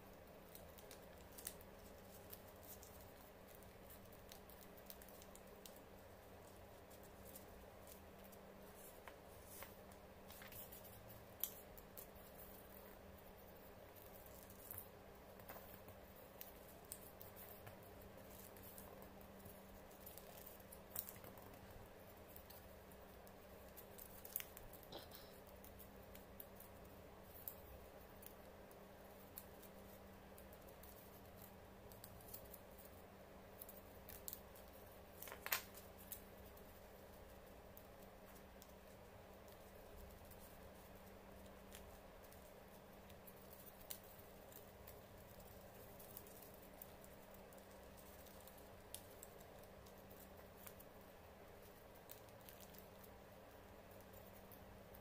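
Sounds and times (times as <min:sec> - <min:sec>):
low steady hum: 0:00.0 - 0:55.0
paper rustling and creasing: 0:07.0 - 0:11.6
paper rustling and tapping: 0:09.0 - 0:11.6, 0:35.2 - 0:36.2.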